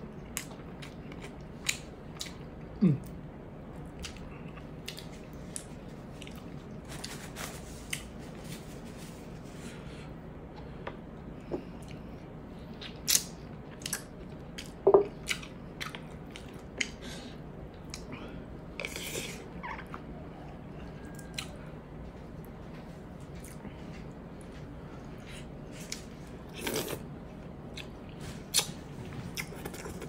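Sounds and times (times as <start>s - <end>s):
person chewing and smacking: 0.2s - 3.2s, 3.9s - 6.8s, 11.7s - 17.0s, 27.6s - 30.0s.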